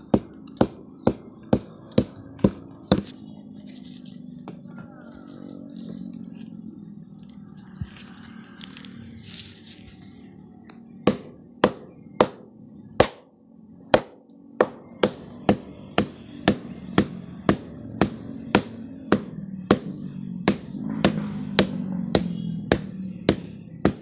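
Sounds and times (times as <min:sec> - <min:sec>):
palm flower stalk being beaten: 0:00.0 - 0:03.2, 0:10.9 - 0:13.3, 0:13.9 - 0:24.0.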